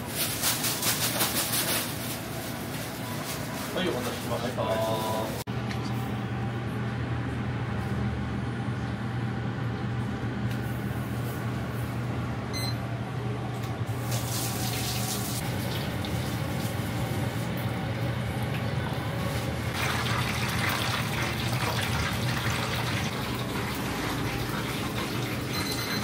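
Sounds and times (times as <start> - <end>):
steady low hum: 4.4 - 14.1
oil sizzling and bubbling: 13.9 - 26.0.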